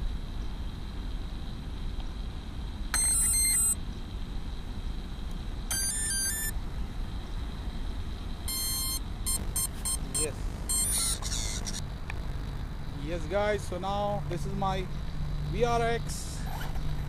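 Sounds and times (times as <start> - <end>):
stepped electronic beeps: 3.0 - 3.8, 5.7 - 6.5, 8.5 - 11.8.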